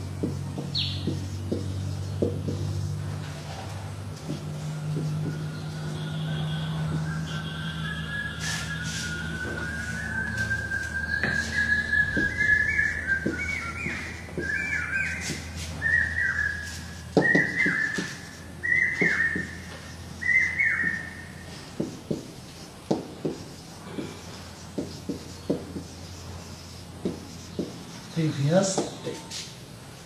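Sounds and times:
high whistled notes: 5.4 - 21.4.

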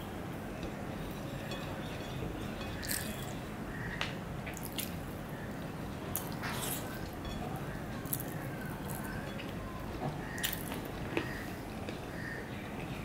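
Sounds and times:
wet chewing and mouth noises: 2.8 - 3.3, 4.5 - 5.2, 8.0 - 9.6, 10.3 - 12.0.

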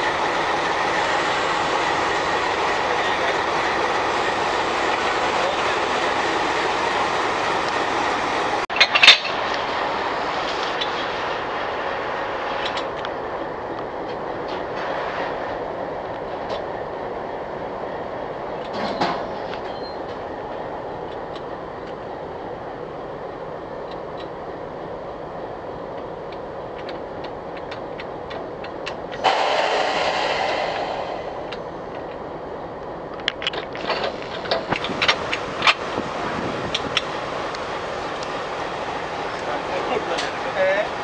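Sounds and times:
train engine idling: 0.0 - 41.0
sharp metal clanks: 8.7 - 9.4
air hiss: 29.2 - 31.9.

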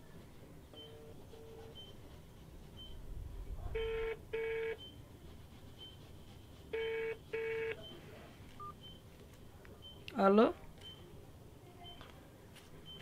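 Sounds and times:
mobile phone ringing: 3.8 - 4.8, 6.8 - 7.8.

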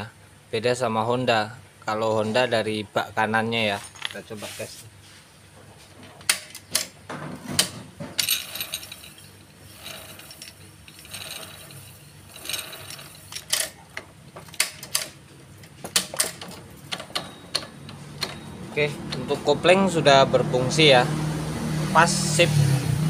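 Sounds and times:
clutch ratcheting whirr: 7.6 - 20.0.

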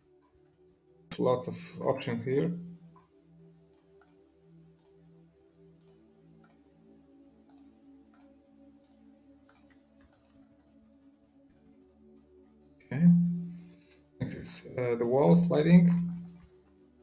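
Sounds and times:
soft background music: 0.0 - 17.0
computer mouse clicks: 3.7 - 4.2, 4.8 - 5.0, 5.8 - 6.6, 7.4 - 12.3, 14.8 - 16.8.

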